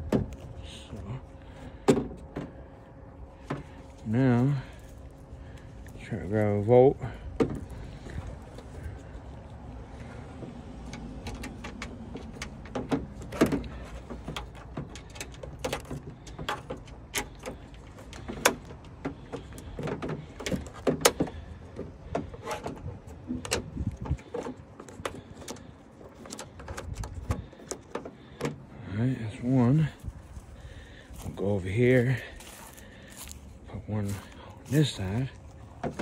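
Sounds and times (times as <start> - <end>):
steady low rumble: 0.0 - 36.0
metal hardware clicks and taps: 10.8 - 28.6.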